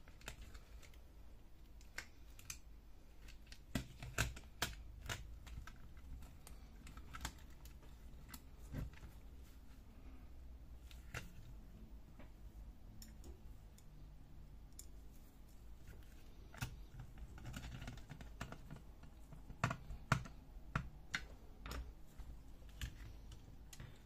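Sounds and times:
plastic and metal parts clicking: 0.0s - 1.0s, 1.6s - 9.2s, 15.9s - 24.0s.

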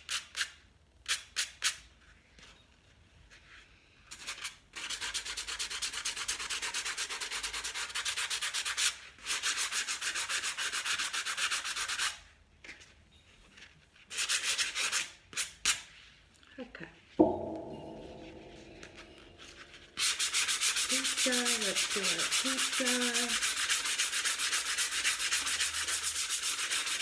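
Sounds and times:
sanding pad rubbing on glass: 20.8s - 27.0s.

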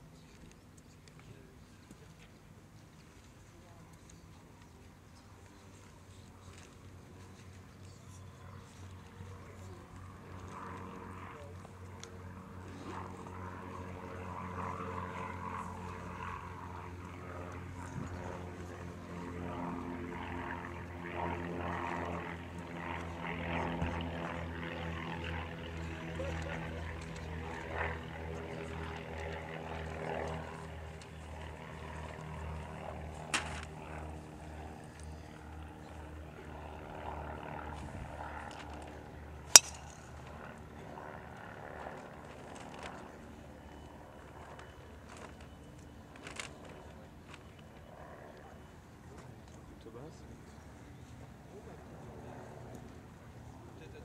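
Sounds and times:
faint voices: 0.0s - 45.0s
golf driver striking ball: 39.5s - 39.9s.

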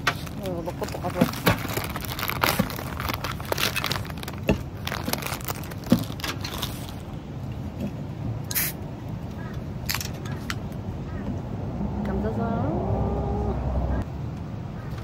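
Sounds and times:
plastic packaging crinkling: 0.0s - 7.7s
steady background hum: 0.0s - 15.0s.

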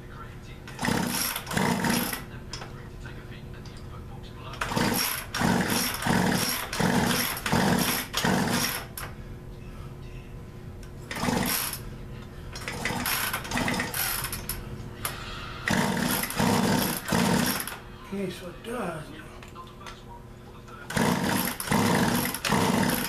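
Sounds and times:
chainsaw being pull-started: 0.8s - 2.2s, 4.6s - 9.0s, 11.1s - 11.8s, 12.6s - 14.5s, 15.7s - 17.8s, 20.9s - 23.0s.

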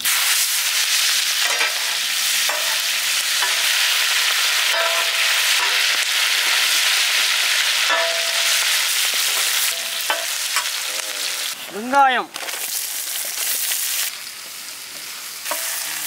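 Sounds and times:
hot oil sizzling in a pan: 0.0s - 16.0s
steel ladle scraping a pan: 1.4s - 7.0s, 15.4s - 16.0s.

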